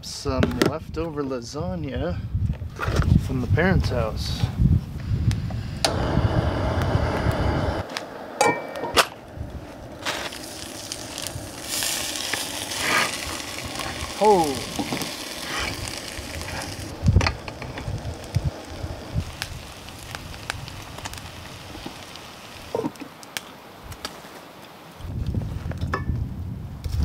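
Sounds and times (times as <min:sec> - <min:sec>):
food sizzling in cookware: 0:08.4 - 0:23.0.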